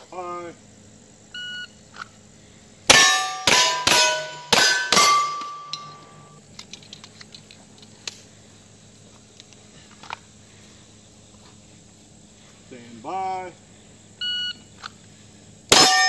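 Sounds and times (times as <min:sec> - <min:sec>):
steel plate ringing: 0:02.9 - 0:06.4, 0:15.7 - 0:16.0.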